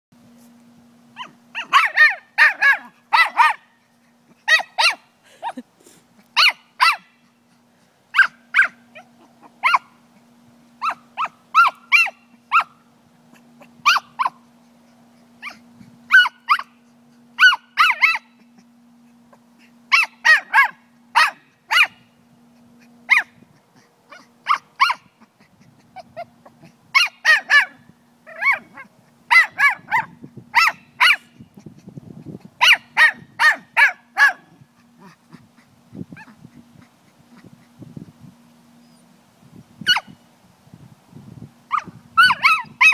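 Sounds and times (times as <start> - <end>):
small dog yapping: 1.2 - 3.7, 4.4 - 5.6, 6.2 - 7.3, 8.1 - 10.0, 10.8 - 14.5, 15.4 - 16.8, 17.4 - 18.7, 19.9 - 22.0, 23.1 - 31.7, 32.6 - 37.6, 39.8 - 40.2, 41.7 - 42.9.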